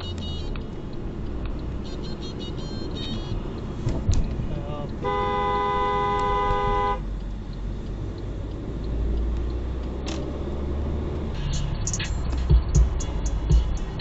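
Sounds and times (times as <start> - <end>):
car horn: 0.0 - 0.6, 1.8 - 3.5, 5.0 - 7.1
car engine and road noise: 0.0 - 14.0.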